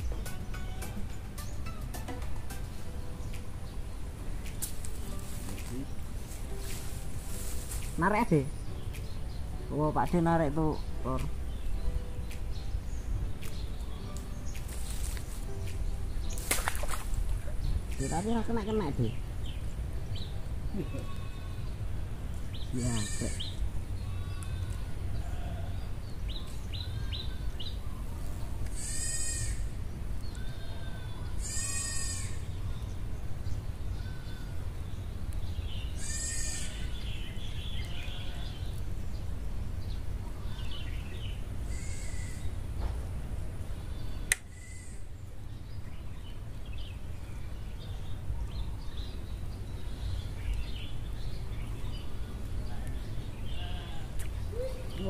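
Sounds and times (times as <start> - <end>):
loud drawn-out animal calls: 22.8 - 23.4, 28.7 - 29.7, 30.7 - 32.4, 36.0 - 36.9, 41.6 - 42.6, 44.5 - 45.2
sharp click: 44.3 - 44.5.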